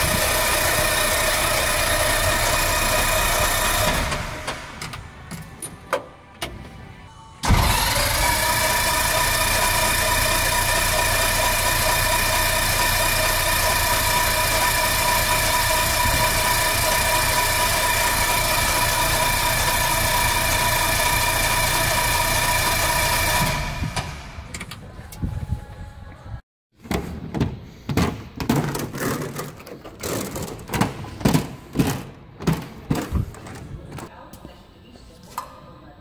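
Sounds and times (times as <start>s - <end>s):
engine electric starter cranking: 0.0s - 5.3s, 7.4s - 24.6s.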